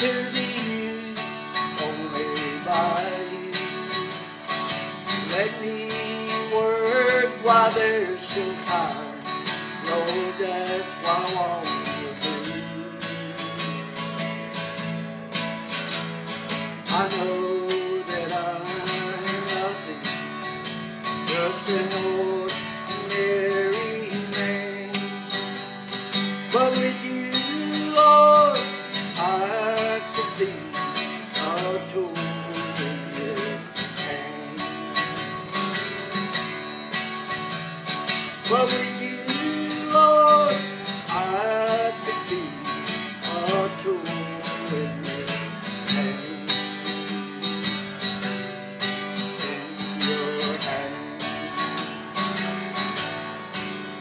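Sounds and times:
acoustic guitar playing: 0.0 - 54.0.

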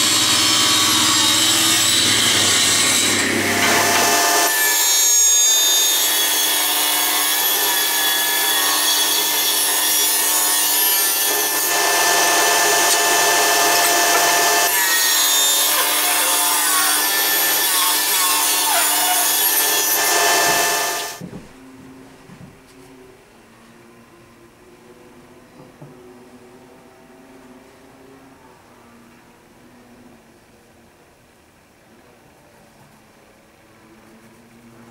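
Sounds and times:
saw blade steady tone: 0.0 - 21.2
table saw cutting wood: 0.0 - 21.2.

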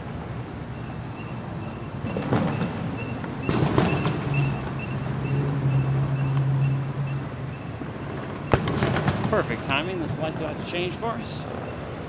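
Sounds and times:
city rumble: 0.0 - 12.0
vehicle engine drone: 0.0 - 12.0
crosswalk signal ticking: 0.6 - 9.0
distant fireworks booming: 2.0 - 11.9.

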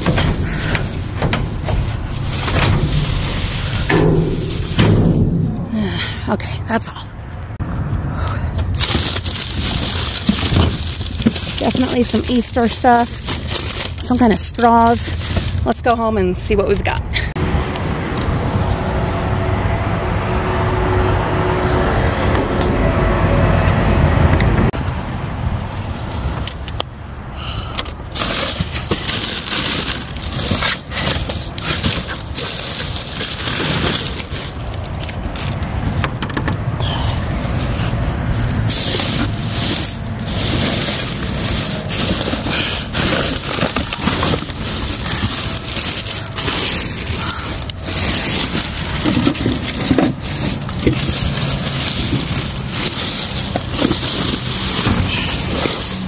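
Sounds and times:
plastic bags rustling and crinkling: 0.0 - 6.0, 8.7 - 17.0, 27.8 - 36.0, 36.7 - 56.0.

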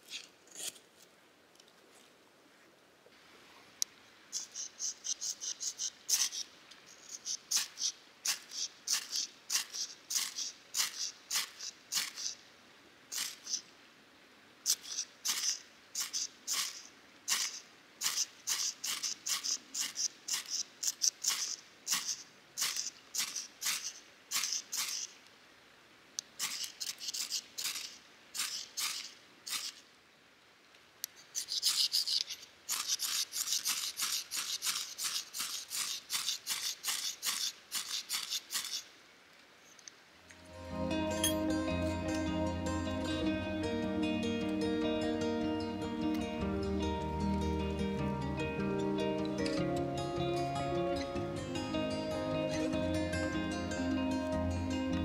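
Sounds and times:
fire-starter rod scraped by striker: 0.0 - 0.9, 4.4 - 12.4, 13.1 - 13.6, 14.7 - 25.1, 26.4 - 29.8, 31.1 - 38.9.

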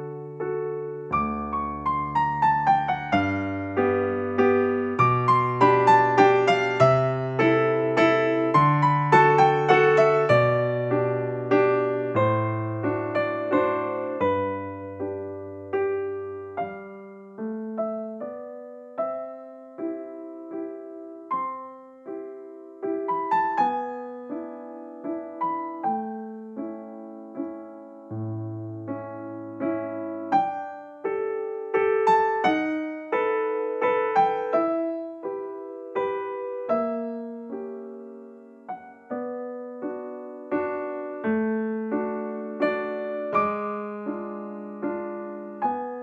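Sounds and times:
gentle piano melody: 0.0 - 46.0.

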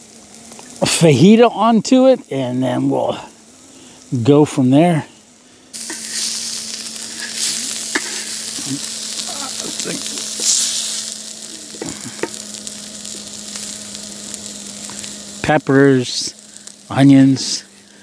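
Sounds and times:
meat and vegetables sizzling in a pan: 0.0 - 18.0
spatula scraping a pan: 5.8 - 8.5.

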